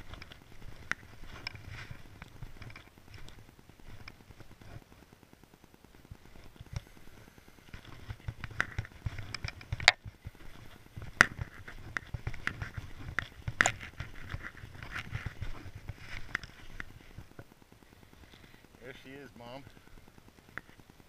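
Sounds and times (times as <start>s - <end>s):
footsteps crunching in snow: 0.0s - 4.8s, 6.2s - 17.4s.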